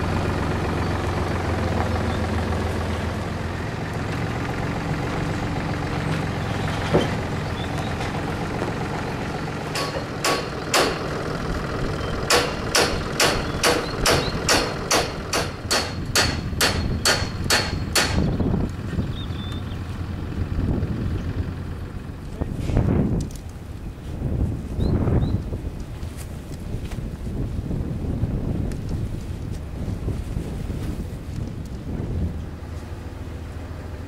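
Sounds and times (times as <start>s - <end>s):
low steady rumble: 0.0s - 34.0s
hammer blows on steel: 9.8s - 11.1s, 12.2s - 18.3s.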